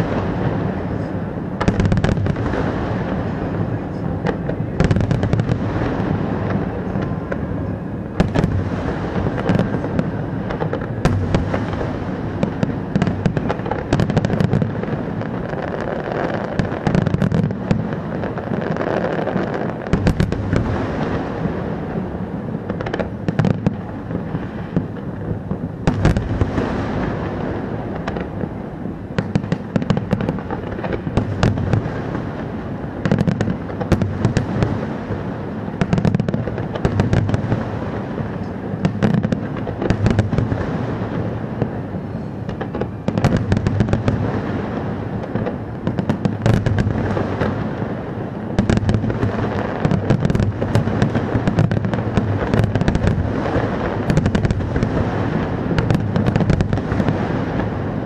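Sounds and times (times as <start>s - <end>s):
fireworks crackling: 0.0s - 58.0s
low booming of fireworks: 0.0s - 58.0s.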